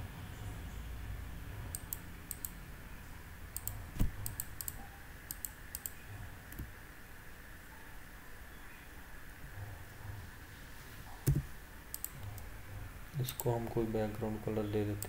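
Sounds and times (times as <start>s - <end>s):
keyboard typing: 1.7s - 2.6s, 3.6s - 6.7s, 11.2s - 12.5s.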